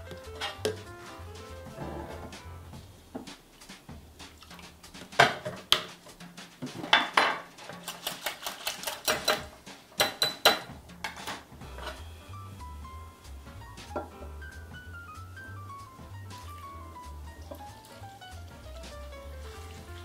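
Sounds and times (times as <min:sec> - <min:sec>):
whisk clinking against glass bowl: 0:07.9 - 0:10.7.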